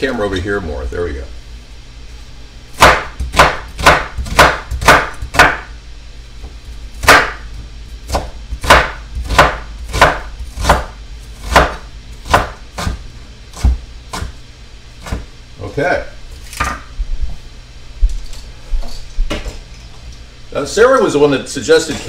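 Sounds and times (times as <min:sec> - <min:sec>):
knife chopping on wooden board: 0:02.8 - 0:05.7, 0:07.0 - 0:07.4, 0:08.1 - 0:14.4, 0:15.0 - 0:15.3.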